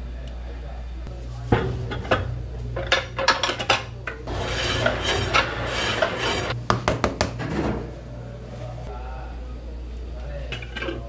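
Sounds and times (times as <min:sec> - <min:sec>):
utensils knocking on cookware: 0:01.6 - 0:07.6
rasping scraping: 0:04.2 - 0:06.6.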